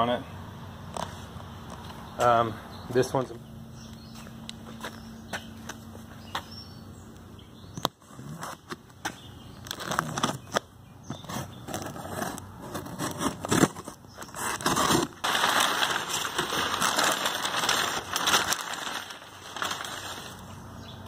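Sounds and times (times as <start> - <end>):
packing paper crinkling: 9.6 - 10.6, 11.3 - 20.6
knife slitting packing tape: 11.3 - 15.2.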